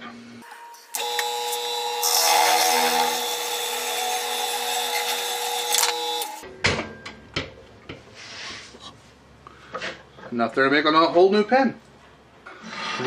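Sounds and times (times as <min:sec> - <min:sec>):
lathe motor whining: 0:00.5 - 0:06.4.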